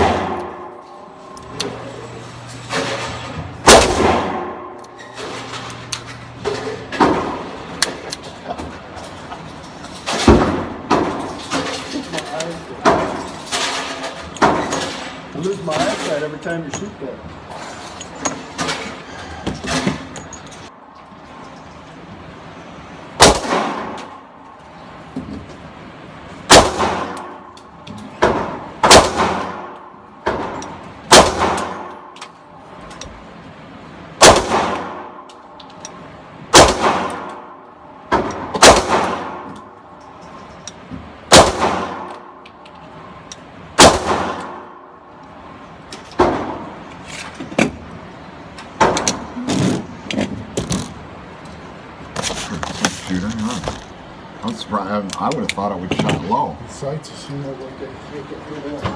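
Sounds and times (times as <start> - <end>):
pistol gunshots with reverberation: 23.2 - 24.0, 26.5 - 27.4, 28.4 - 29.8, 31.1 - 32.1, 34.2 - 35.2, 36.5 - 37.5, 38.2 - 39.5, 41.3 - 42.4, 43.8 - 44.8.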